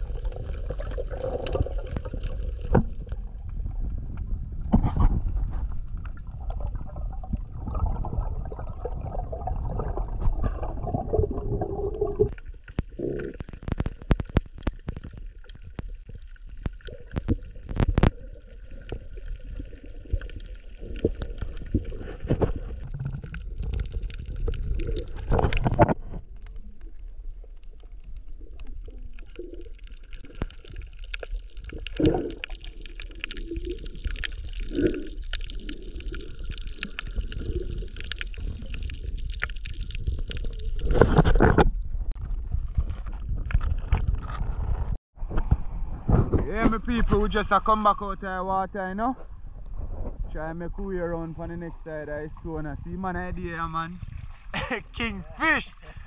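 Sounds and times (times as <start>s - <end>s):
faint gurgling: 0.0s - 27.0s, 27.8s - 41.8s
muffled underwater rumble: 0.0s - 47.4s.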